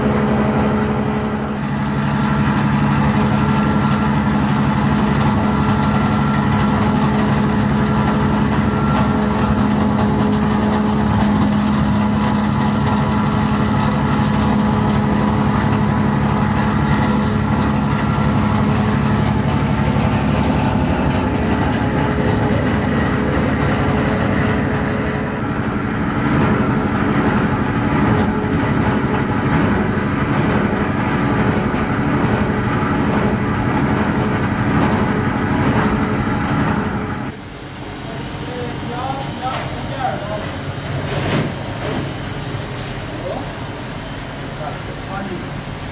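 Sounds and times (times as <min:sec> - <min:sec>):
heavy machinery humming: 0:00.0 - 0:45.9.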